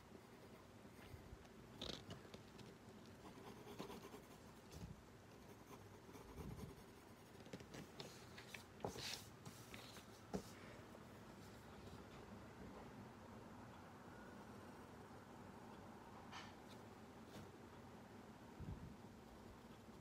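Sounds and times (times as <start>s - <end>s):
pencil scratching on paper: 3.2s - 4.5s, 5.4s - 8.2s.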